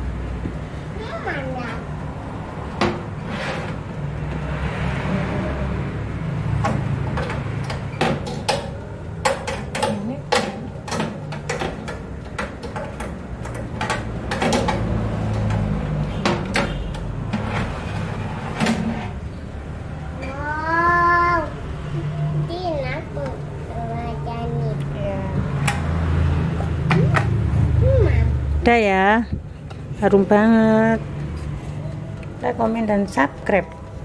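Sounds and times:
sharp clicks and knocks: 0:06.5 - 0:17.7.

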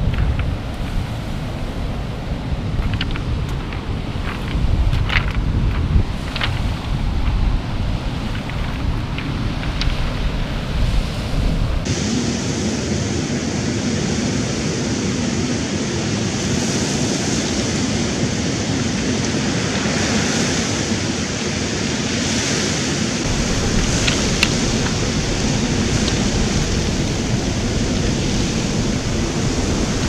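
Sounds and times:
surf over pebbles: 0:00.0 - 0:12.0, 0:16.0 - 0:30.0
wind buffeting microphone: 0:00.0 - 0:21.8, 0:23.0 - 0:30.0.

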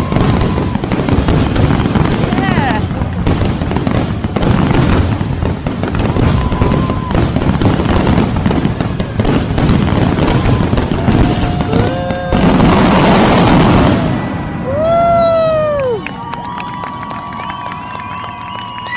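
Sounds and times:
crowd whooping and cheering: 0:00.0 - 0:03.2, 0:05.8 - 0:18.9
fireworks bangs and crackling: 0:00.0 - 0:18.9.

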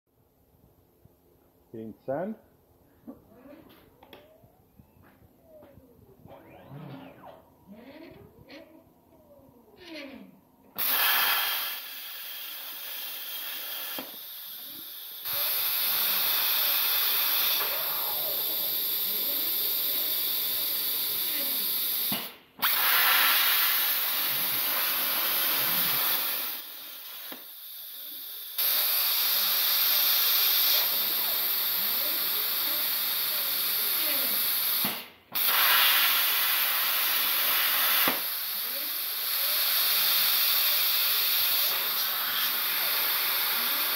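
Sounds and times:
stepper motors whining: 0:03.3 - 0:10.8
plasma torch hissing: 0:10.8 - 0:43.9.

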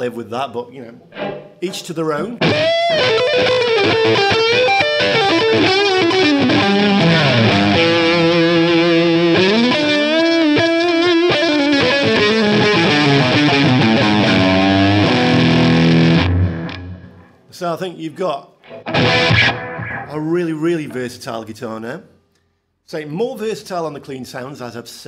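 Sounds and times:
distorted electric guitar lead: 0:01.1 - 0:01.7, 0:02.4 - 0:17.4, 0:18.6 - 0:20.2.

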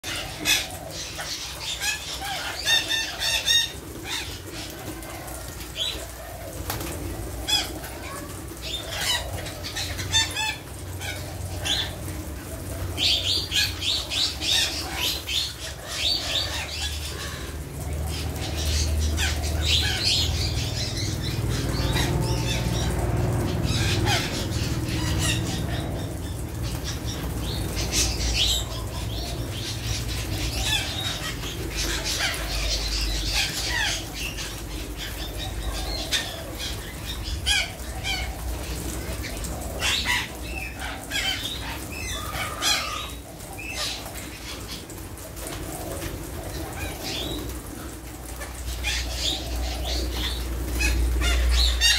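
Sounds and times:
parakeets calling: 0:00.0 - 0:51.9
birds' wings flapping: 0:03.6 - 0:09.6.

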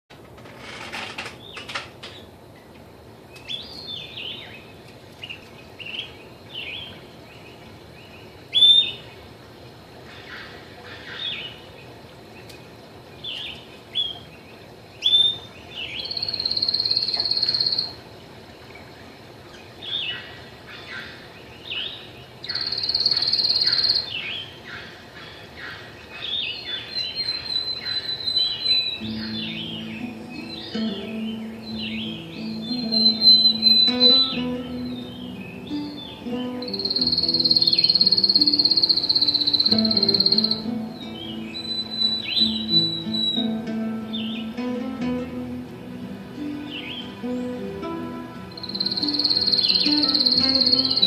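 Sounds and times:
canary singing: 0:15.0 - 0:18.0, 0:21.7 - 0:24.6, 0:26.2 - 0:51.0.

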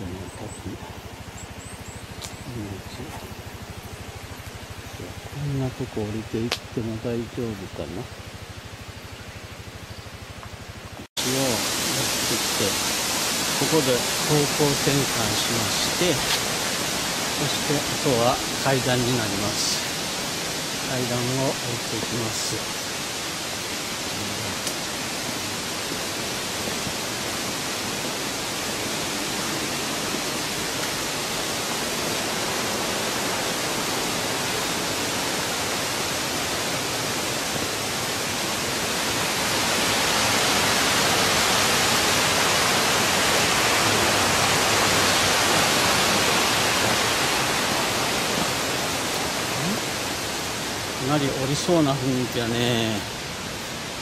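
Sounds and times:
waterfall rushing: 0:02.0 - 0:09.1, 0:11.2 - 0:54.0.

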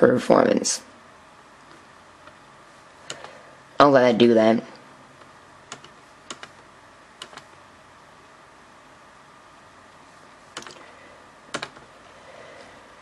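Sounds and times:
faint steady hiss: 0:00.0 - 0:13.0
laptop controls clicking: 0:03.0 - 0:03.4, 0:05.2 - 0:06.6, 0:07.2 - 0:07.6, 0:10.5 - 0:10.9, 0:11.5 - 0:11.9.

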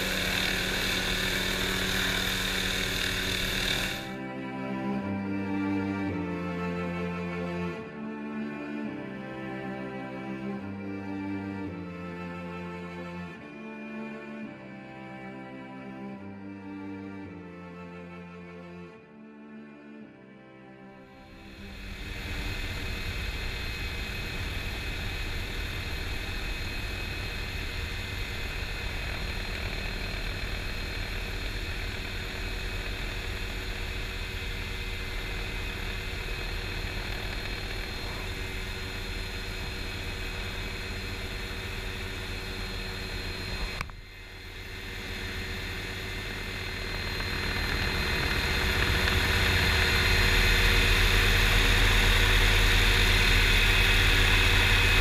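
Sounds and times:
helicopter rotor turning: 0:00.0 - 0:04.2, 0:21.3 - 0:55.0.

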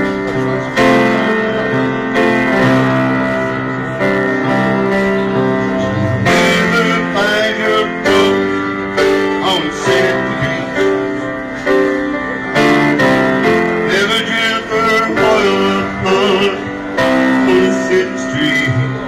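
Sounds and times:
piano ballad: 0:00.0 - 0:19.0
man singing: 0:05.6 - 0:11.3, 0:12.6 - 0:19.0.

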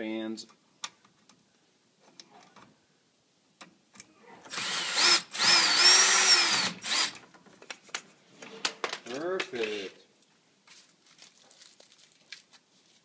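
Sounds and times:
power drill motor whine: 0:04.5 - 0:07.2.

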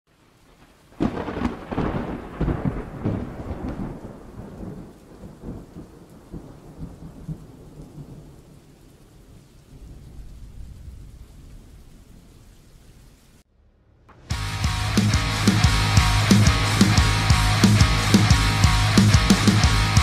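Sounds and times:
rain hissing: 0:00.1 - 0:20.0
thunderclap rumbling: 0:00.9 - 0:08.5, 0:09.3 - 0:12.4.

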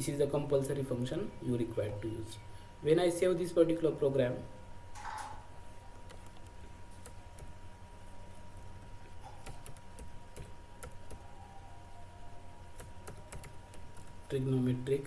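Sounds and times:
faint electrical hum: 0:00.0 - 0:15.0
keyboard keys tapping: 0:09.0 - 0:11.2, 0:12.8 - 0:14.2.

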